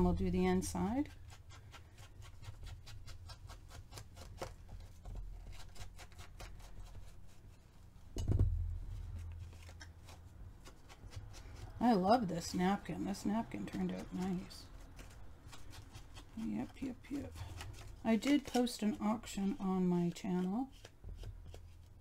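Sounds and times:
dull thump: 8.2 - 8.9.

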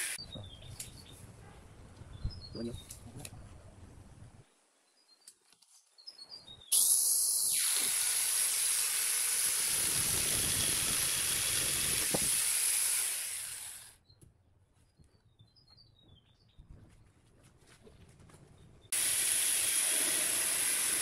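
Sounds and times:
birds chirping: 0.1 - 3.2
angle grinder whining: 6.7 - 13.9.

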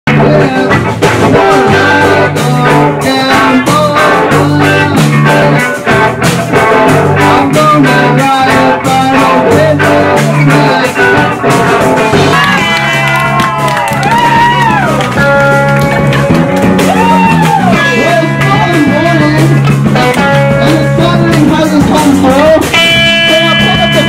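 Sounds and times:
drum kit beat: 0.1 - 24.0
electric guitars: 0.1 - 24.0.

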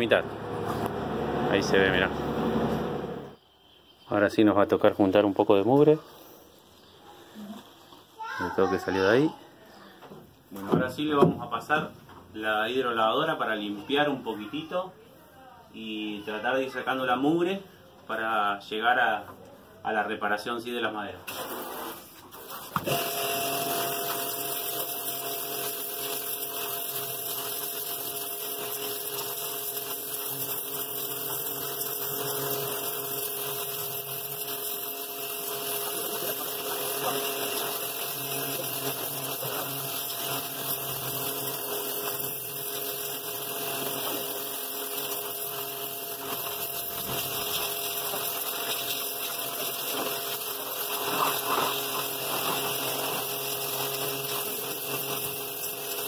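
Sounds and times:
pressure washer pump humming: 0.0 - 3.3, 21.3 - 56.0
water jet spraying a hull: 21.3 - 56.0.

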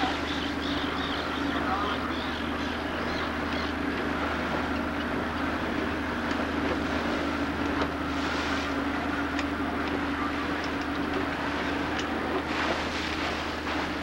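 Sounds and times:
motorboat engine drone: 0.0 - 14.0
water rushing past hull: 0.0 - 14.0.

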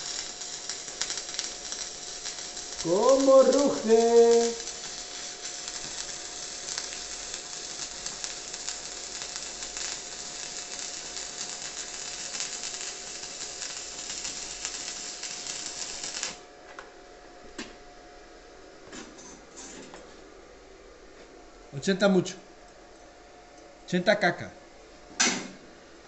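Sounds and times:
welding arc hissing and crackling: 0.0 - 16.5.

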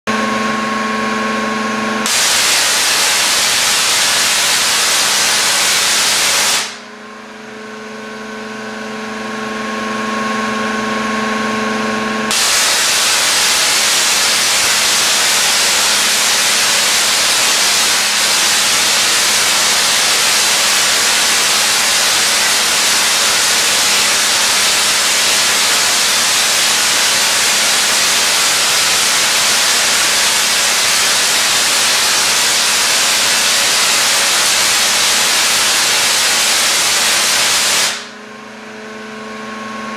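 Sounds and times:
steady hum: 0.1 - 9.6, 11.9 - 39.9
tesla coil sparks hissing: 2.0 - 6.8, 12.3 - 38.1.

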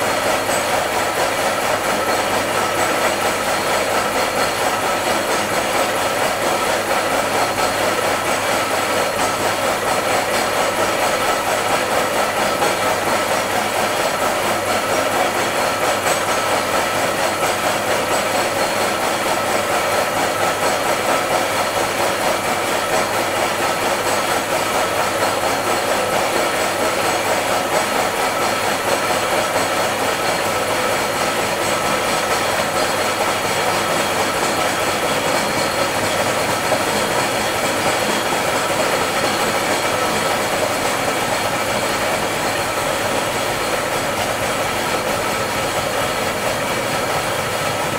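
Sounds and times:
milling machine cutting metal: 0.1 - 47.9.

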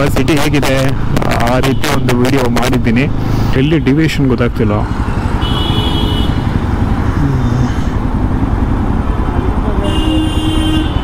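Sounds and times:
road traffic rumble: 0.0 - 11.0
high-pitched vehicle horn: 5.4 - 6.5, 9.8 - 11.0.

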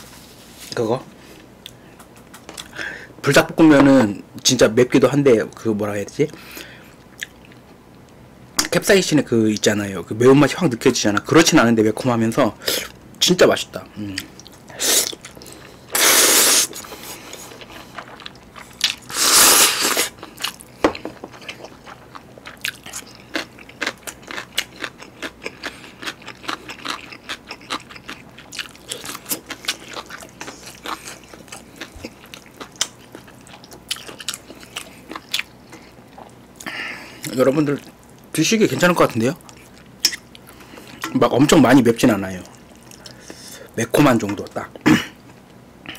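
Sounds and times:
wet chewing with smacks: 1.6 - 2.7
loud noodle slurps: 16.0 - 16.8, 19.1 - 20.2.

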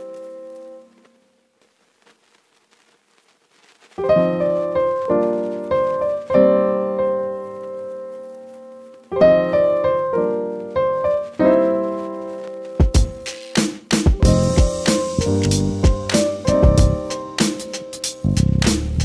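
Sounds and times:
piano notes and chords: 0.0 - 1.2, 4.0 - 19.0.

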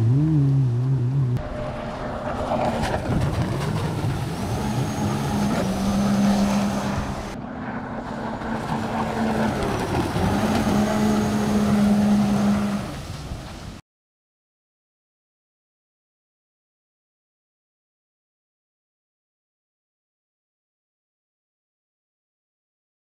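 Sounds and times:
jet ski engines droning: 0.0 - 13.8.

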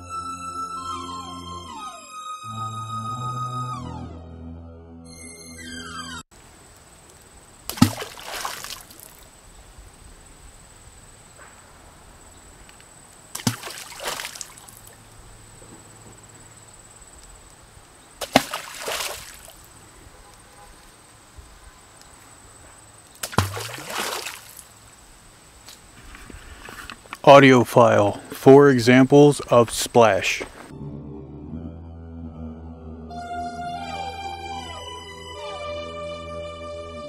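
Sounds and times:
water splashes: 7.6 - 9.3, 13.3 - 15.1, 18.2 - 19.8, 23.2 - 24.8.

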